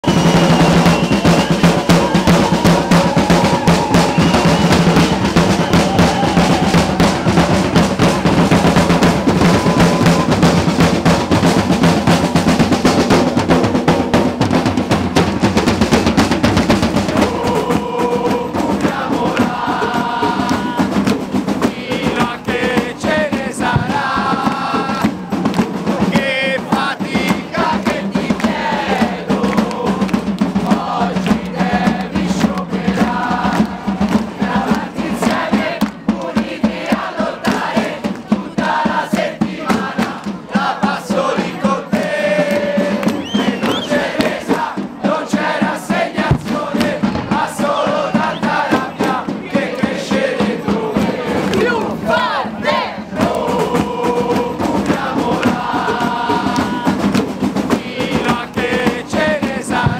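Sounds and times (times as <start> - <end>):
fast snare and bass drum music: 0.0 - 59.9
voices over music: 34.5 - 57.0.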